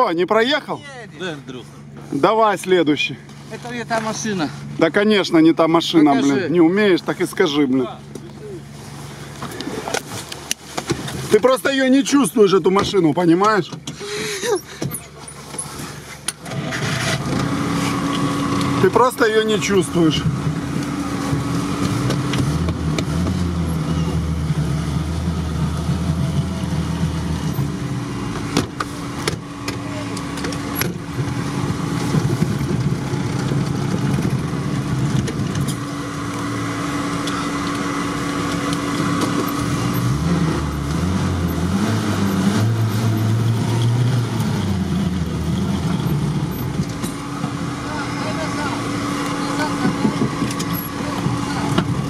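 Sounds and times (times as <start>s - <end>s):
engine running under load: 0.0s - 52.0s.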